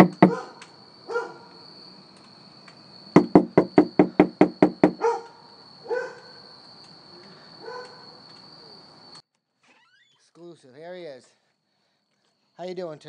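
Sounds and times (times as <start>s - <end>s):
knocking on wooden door: 0.0s - 0.4s, 3.2s - 5.0s
dog barking: 0.2s - 1.5s, 5.0s - 6.4s, 7.6s - 8.1s.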